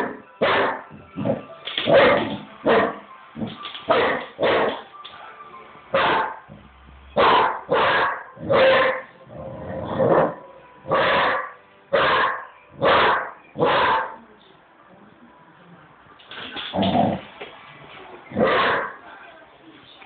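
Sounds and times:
dog barking: 0.0 - 0.9, 1.9 - 3.0, 3.9 - 4.8, 5.9 - 6.5, 7.2 - 9.1, 10.0 - 14.2, 18.4 - 19.0.

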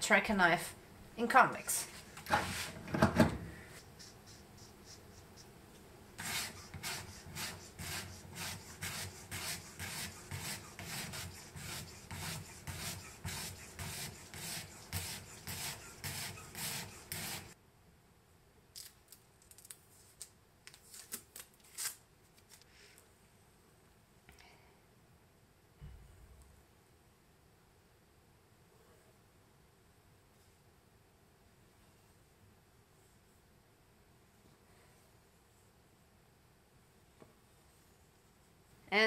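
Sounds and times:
sandpaper scraping on knife edge: 2.2 - 2.8, 6.2 - 17.6.

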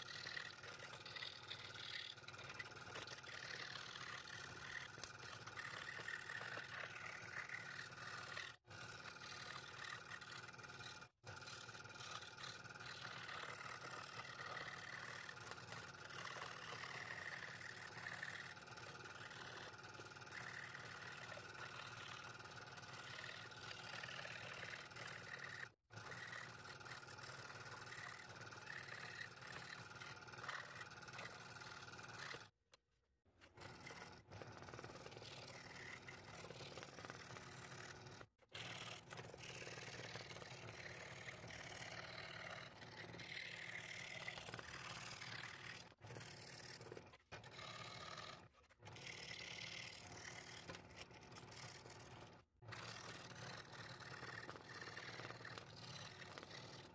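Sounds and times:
scroll saw cutting wood: 0.0 - 32.6, 33.3 - 56.9.

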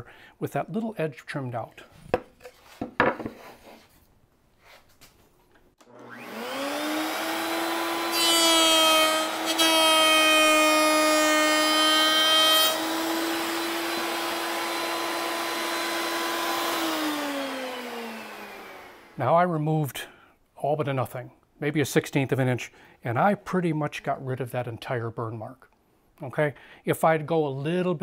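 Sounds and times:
router switch: 5.8 - 10.3
router bit cutting wood: 5.8 - 19.2
router motor whining: 5.8 - 19.2.

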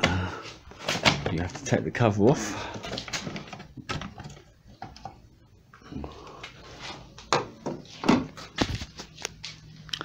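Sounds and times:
plastic clicks and knocks: 2.8 - 5.2.

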